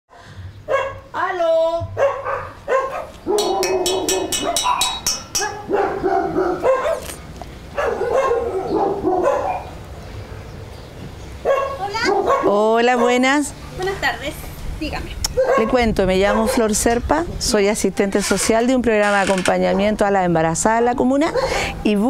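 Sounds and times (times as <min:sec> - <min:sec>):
dog barking: 0:00.7 - 0:01.1, 0:02.0 - 0:09.8, 0:11.4 - 0:13.4, 0:15.3 - 0:16.8, 0:21.2 - 0:21.6.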